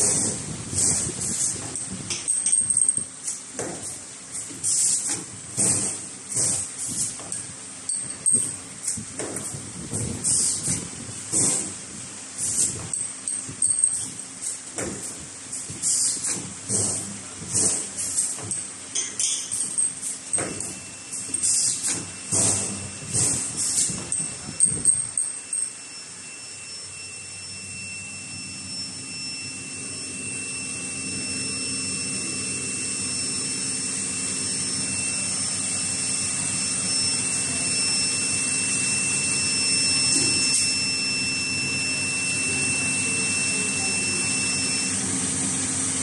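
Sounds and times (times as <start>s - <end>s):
welding machine drone and hiss: 0.0s - 46.0s
faint high whines: 12.4s - 45.7s.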